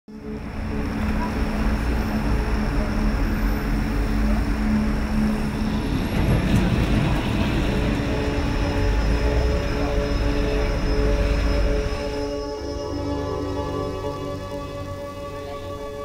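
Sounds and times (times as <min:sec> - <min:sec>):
street traffic hum: 0:00.1 - 0:12.7
tram running on rails: 0:00.1 - 0:16.0.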